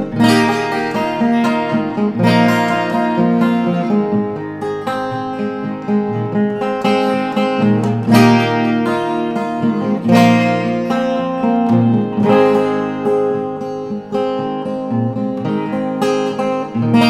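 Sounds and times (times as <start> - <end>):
strummed acoustic guitar: 0.0 - 17.0.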